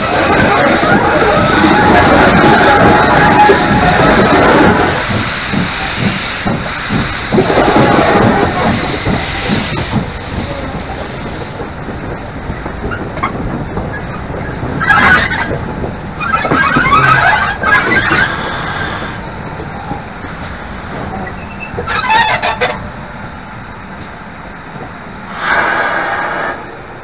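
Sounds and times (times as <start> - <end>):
steam locomotive running: 0.0 - 27.0
rough bursts of noise: 25.3 - 26.8.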